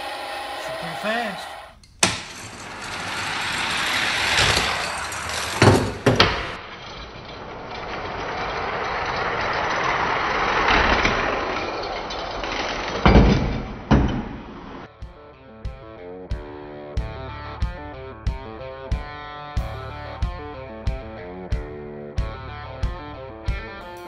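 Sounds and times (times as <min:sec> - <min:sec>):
toy cars clacking at finish: 0:01.9 - 0:06.6
toy cars rolling down plastic track: 0:02.0 - 0:13.3.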